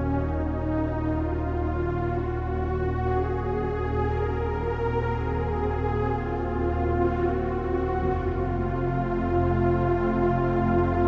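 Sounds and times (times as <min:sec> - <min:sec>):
ambient music with held chords: 0:00.0 - 0:11.0.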